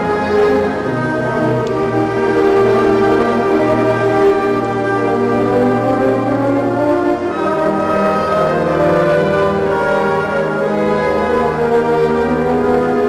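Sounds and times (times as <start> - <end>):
wind band playing held chords: 0.0 - 13.0.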